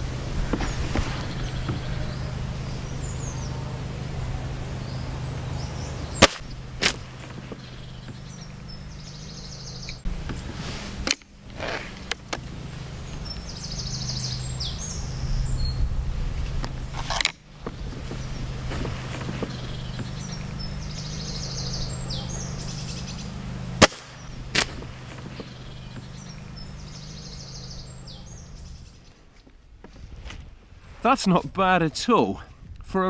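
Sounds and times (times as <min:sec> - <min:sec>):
low hum: 0:00.0 - 0:29.8
birds chirping: 0:00.0 - 0:30.1
air rifle shot: 0:06.2 - 0:07.6, 0:23.8 - 0:25.5.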